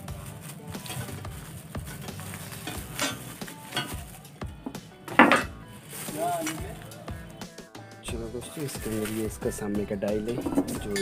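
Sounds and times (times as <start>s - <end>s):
plastic bag crinkling: 0.0s - 4.5s, 5.2s - 7.4s, 8.5s - 9.6s.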